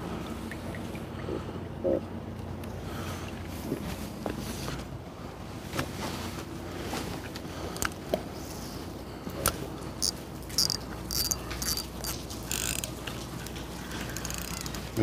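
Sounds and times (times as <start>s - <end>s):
steady low hum: 0.0s - 15.0s
fishing reel cranking clicks: 10.0s - 12.9s, 14.0s - 14.9s.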